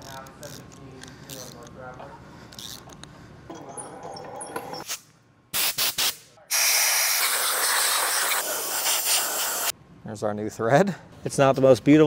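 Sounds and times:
compressed air blow gun blasting: 0:05.6 - 0:09.7.

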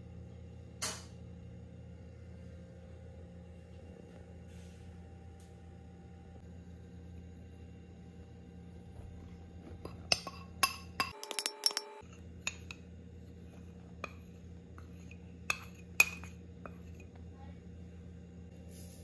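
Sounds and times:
ceramic bowl tapping steel bowl: 0:09.8 - 0:12.8, 0:14.0 - 0:17.1.

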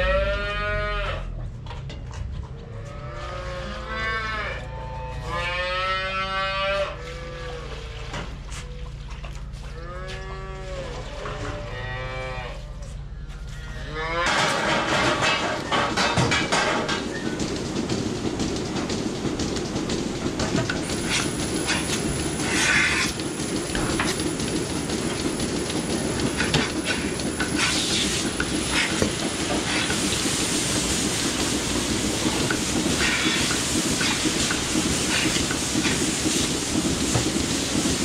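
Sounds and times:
mechanical rumbling: 0:00.0 - 0:38.0
irregular clicking and rattling: 0:14.3 - 0:38.0.

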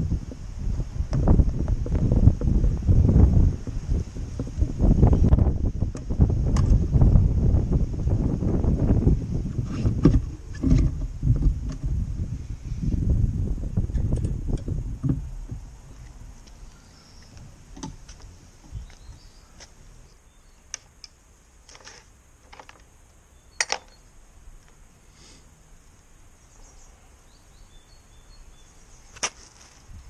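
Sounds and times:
outdoor ambience: 0:00.0 - 0:30.0
metal tool clicks and knocks: 0:23.6 - 0:24.0.

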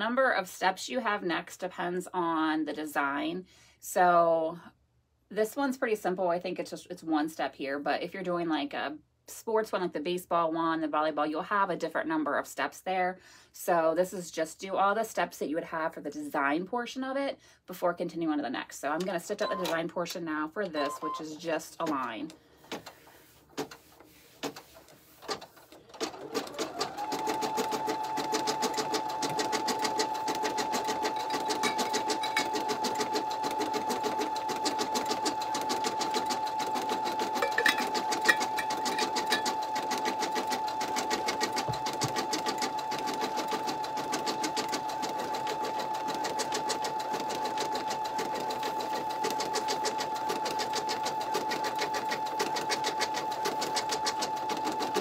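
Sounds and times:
embroidery machine stitching: 0:24.4 - 0:55.0.

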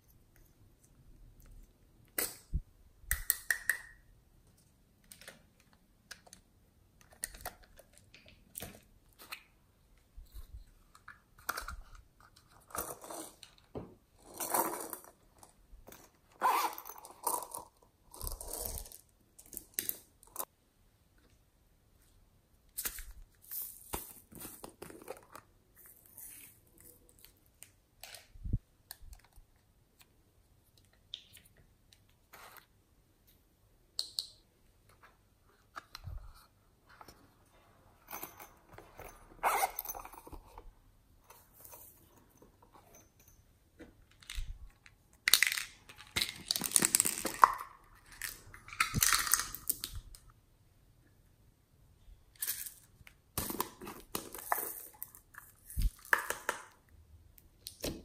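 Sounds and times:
plastic bottles and lids clicking: 0:43.8 - 0:50.2, 0:55.8 - 0:56.8.

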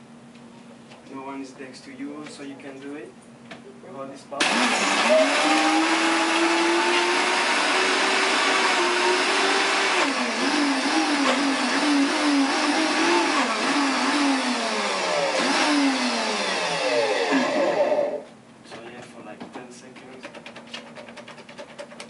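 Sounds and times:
blender crushing ice: 0:04.4 - 0:18.2.

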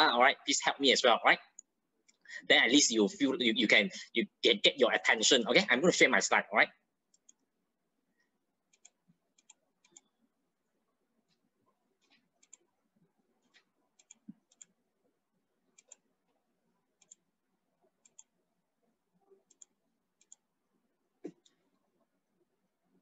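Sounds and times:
computer mouse clicks: 0:07.1 - 0:07.5, 0:08.7 - 0:10.2, 0:12.0 - 0:12.7, 0:13.4 - 0:14.8, 0:15.7 - 0:16.1, 0:17.0 - 0:17.3, 0:18.0 - 0:18.4, 0:19.4 - 0:20.5.

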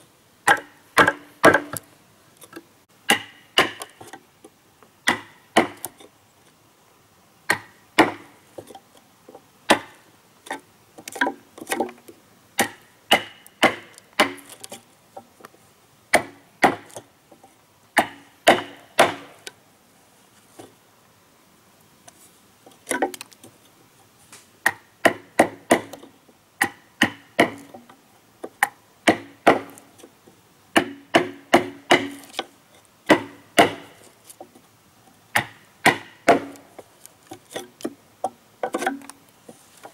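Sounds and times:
tool chopping wood: 0:00.4 - 0:01.8, 0:03.1 - 0:04.2, 0:05.0 - 0:06.0, 0:07.5 - 0:08.4, 0:09.7 - 0:10.0, 0:12.6 - 0:14.7, 0:16.1 - 0:17.0, 0:18.0 - 0:19.4, 0:24.6 - 0:27.9, 0:28.5 - 0:29.9, 0:30.8 - 0:32.5, 0:33.1 - 0:34.0, 0:35.3 - 0:36.7.

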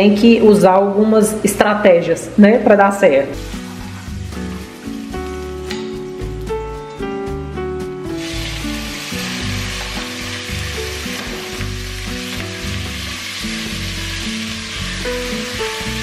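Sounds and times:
background music: 0:00.0 - 0:16.0
beef sizzling in a pot: 0:03.4 - 0:06.6, 0:08.1 - 0:16.0.

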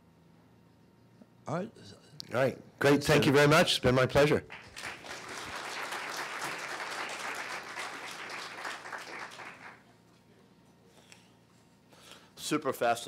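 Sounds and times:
small audience applauding: 0:04.4 - 0:10.0.

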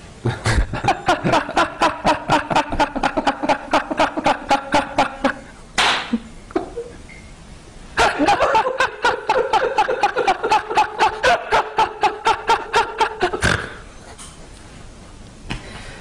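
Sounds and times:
men laughing hard: 0:00.2 - 0:05.6, 0:08.0 - 0:13.9
gasp of breath: 0:15.6 - 0:16.0.

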